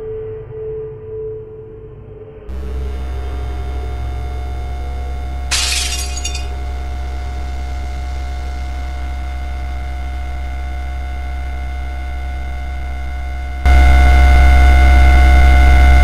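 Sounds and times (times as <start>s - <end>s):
constant tones: 2.5s - 16.0s
steady hum: 2.5s - 16.0s.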